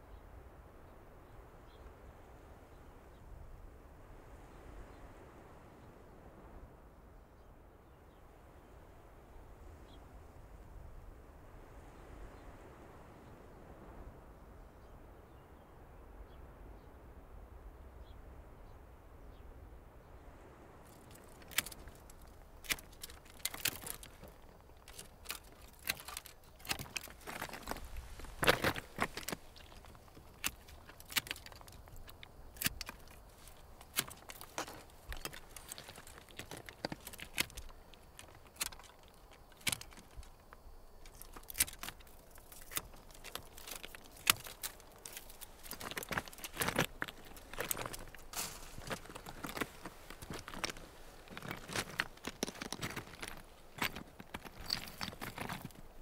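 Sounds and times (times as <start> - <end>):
footsteps crunching on loose stones: 20.9 - 56.0.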